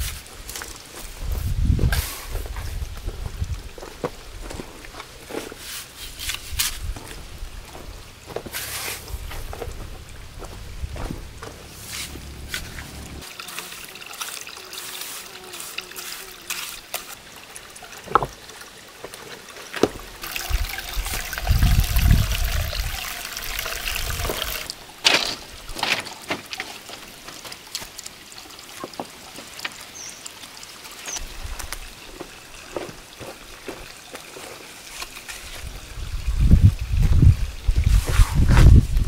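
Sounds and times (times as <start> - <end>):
water trickling: 0.5 - 38.0
low thuds: 6.9 - 13.2
trowel scraping wet mortar: 11.7 - 17.2
stones being set down: 18.0 - 18.4, 19.8 - 20.1, 24.2 - 27.6.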